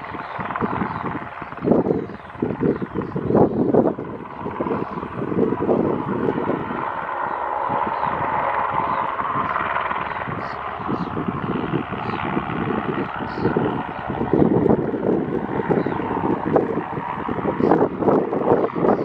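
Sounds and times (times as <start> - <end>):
helicopter rotor beat: 0.0 - 19.0
turbine whine: 0.0 - 19.0.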